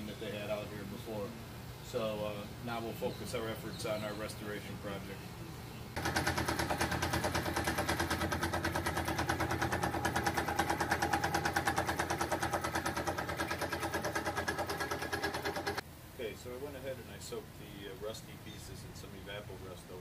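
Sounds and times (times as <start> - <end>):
drill press running: 6.0 - 15.8.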